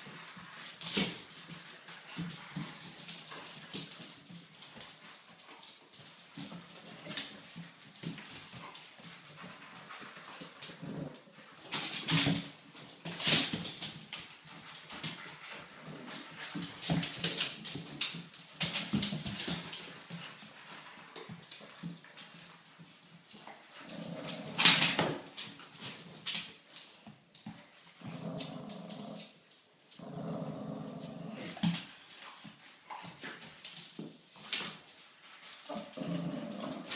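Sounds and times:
dogs growling: 10.4s - 11.4s, 23.7s - 25.0s, 28.0s - 29.4s, 30.0s - 31.8s, 35.7s - 36.9s.

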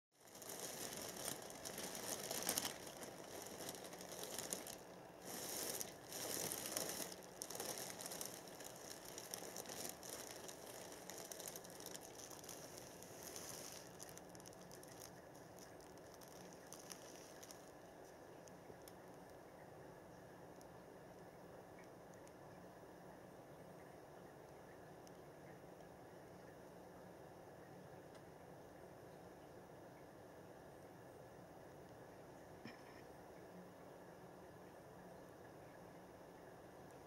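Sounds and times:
plastic bags crinkling: 0.2s - 17.8s.

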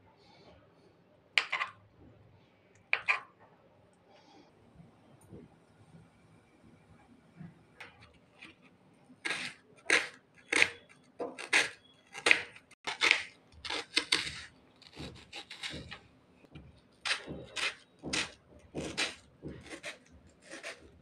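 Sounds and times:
knife slicing onion on board: 9.2s - 16.0s, 17.0s - 21.0s.

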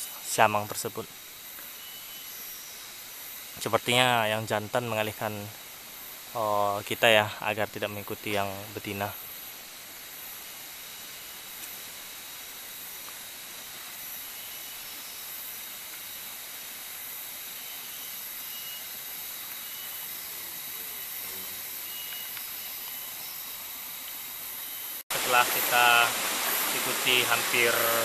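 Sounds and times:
faint insect chirps: 0.0s - 28.0s
high-pitched insect drone: 0.0s - 28.0s.

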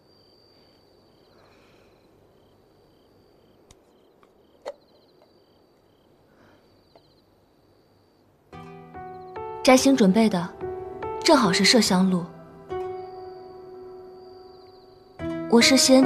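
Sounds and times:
crickets chirping: 0.0s - 16.0s.

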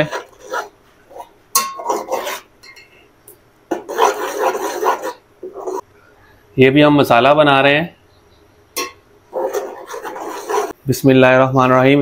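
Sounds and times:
metal spatula scraping a pot: 0.0s - 3.1s, 3.7s - 5.9s, 8.8s - 10.8s.

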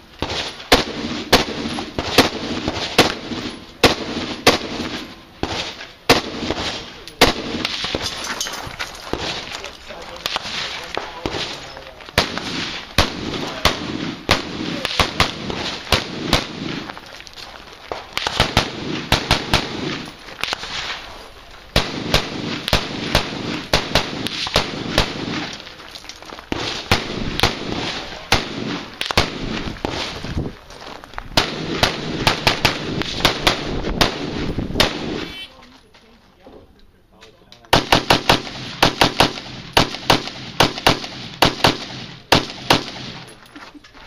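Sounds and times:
rifle fired rapidly: 0.2s - 8.0s, 12.2s - 16.9s, 18.2s - 20.8s, 21.8s - 25.6s, 26.5s - 30.2s, 31.4s - 35.3s, 37.7s - 43.3s.

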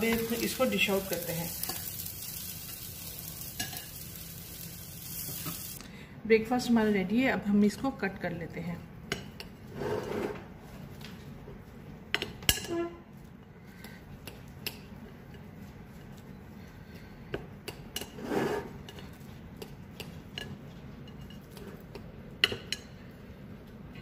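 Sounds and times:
knife scraping a plate: 9.7s - 10.4s, 18.0s - 19.1s.

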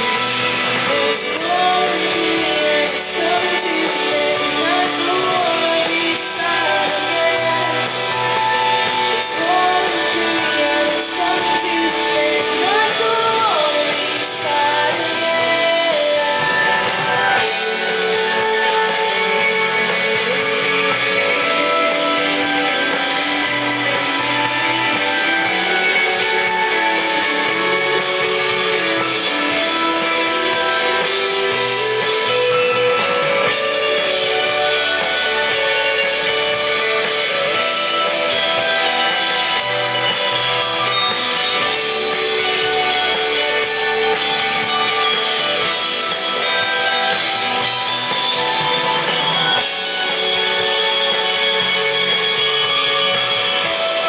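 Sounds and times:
live band playing: 0.0s - 54.0s
woman singing: 0.6s - 39.2s.

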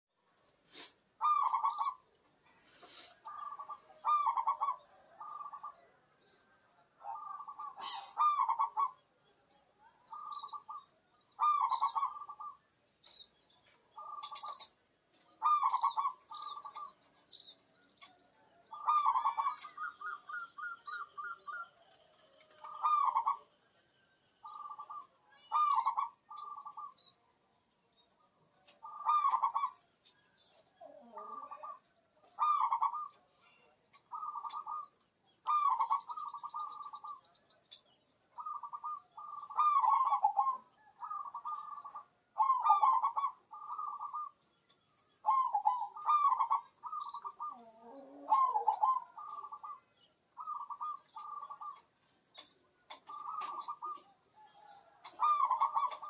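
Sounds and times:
bird chirps: 0.2s - 56.0s
dove cooing: 0.7s - 2.0s, 2.8s - 5.9s, 7.0s - 9.0s, 10.0s - 12.6s, 15.4s - 17.0s, 18.1s - 23.5s, 24.4s - 27.0s, 28.6s - 29.8s, 30.7s - 37.2s, 38.4s - 44.3s, 45.2s - 51.9s, 52.9s - 56.0s.

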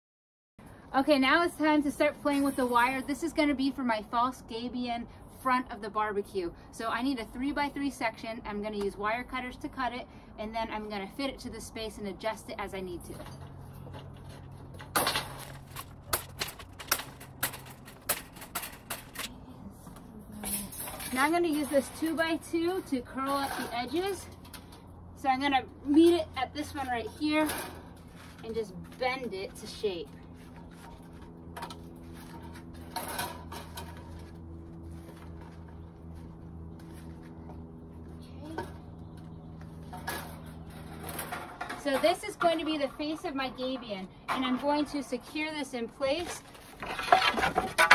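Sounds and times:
steady low hum: 0.6s - 47.9s
wire mesh scrape: 14.2s - 19.3s.

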